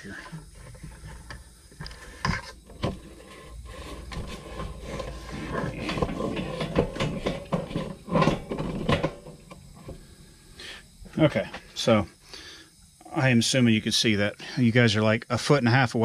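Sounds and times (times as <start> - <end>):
rubbing and rattling: 0.1 - 10.1.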